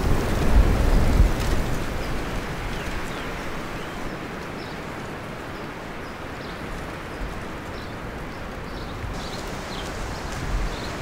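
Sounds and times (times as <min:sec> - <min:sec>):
steady background hiss: 0:09.1 - 0:11.0.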